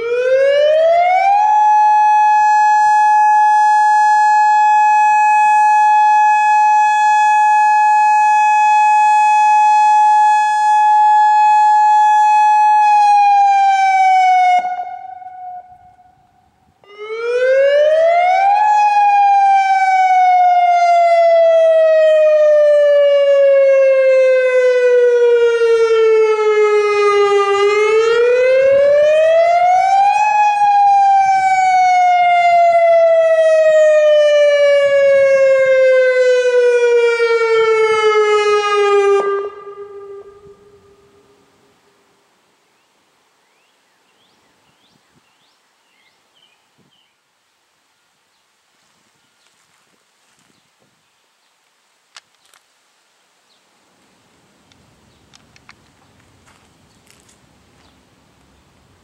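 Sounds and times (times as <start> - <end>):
electronic warning siren: 0.0 - 41.4.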